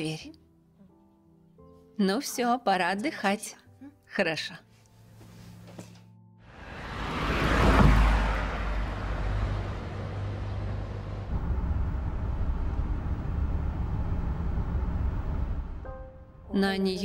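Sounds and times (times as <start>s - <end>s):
bus passing by: 6.4s - 16.1s
low engine rumble with hum: 8.0s - 15.9s.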